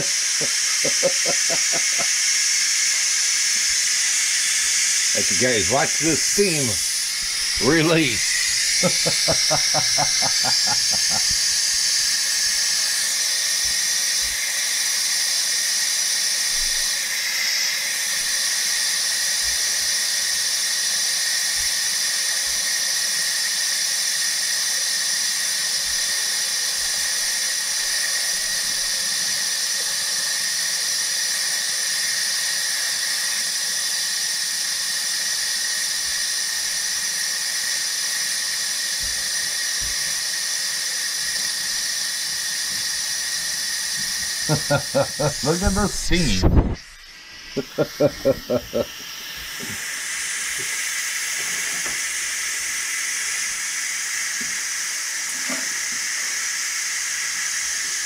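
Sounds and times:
pressure cooker steam hissing: 0:00.0 - 0:58.0.

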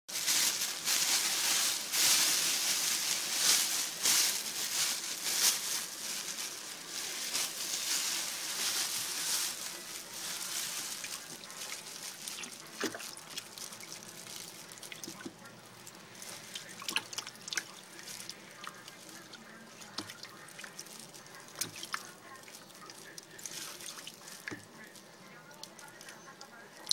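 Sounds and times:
water splashing and sloshing: 0:07.0 - 0:24.8
water dripping: 0:11.0 - 0:24.9, 0:25.5 - 0:26.9.

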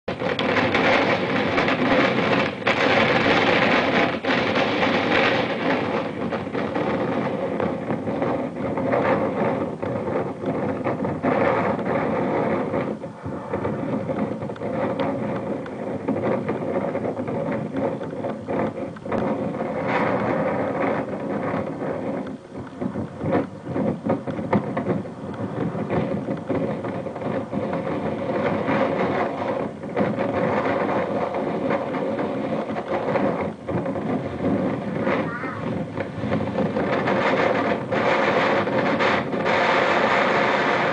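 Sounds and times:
wind buffeting microphone: 0:00.0 - 0:40.9.

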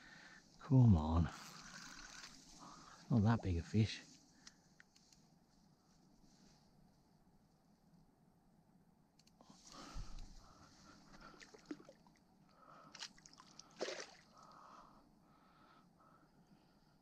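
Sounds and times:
water splashing and sloshing: 0:11.1 - 0:12.2, 0:12.9 - 0:14.6.

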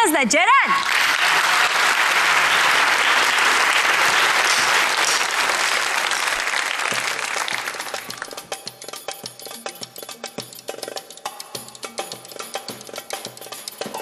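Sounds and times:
audience applauding: 0:00.7 - 0:08.5.

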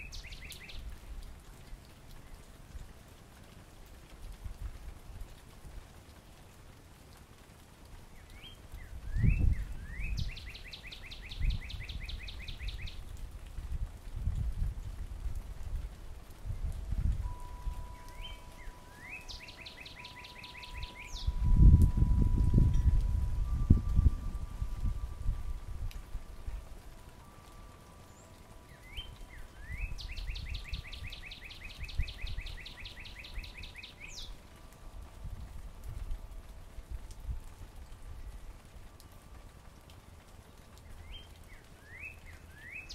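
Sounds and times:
cardinal singing whistles: 0:17.2 - 0:25.6.

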